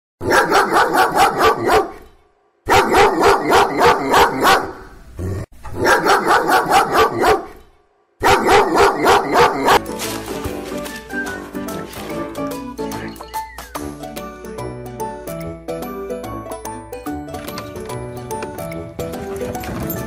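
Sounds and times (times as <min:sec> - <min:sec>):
dog barking rapidly: 0:00.2 - 0:02.1, 0:02.7 - 0:04.9, 0:05.7 - 0:07.6, 0:08.2 - 0:09.9.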